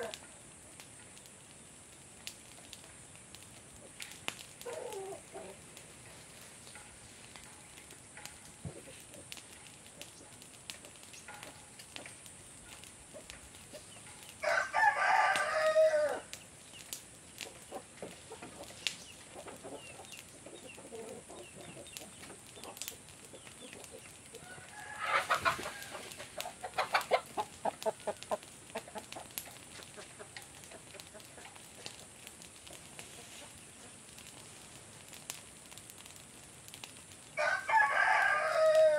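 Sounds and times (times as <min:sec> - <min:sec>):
chickens clucking: 0:04.6 - 0:05.8, 0:08.6 - 0:12.2, 0:12.8 - 0:14.3, 0:16.8 - 0:34.0
rooster crowing: 0:14.4 - 0:16.4, 0:24.3 - 0:27.2, 0:37.4 - 0:38.9.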